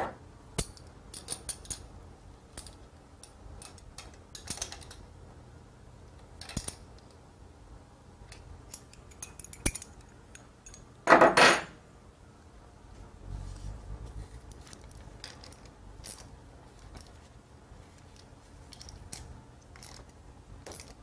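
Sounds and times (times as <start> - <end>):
small metal parts clinking: 0.6 - 1.9, 2.5 - 5.0, 6.4 - 7.2, 8.3 - 11.4, 14.4 - 17.2, 18.0 - 21.0.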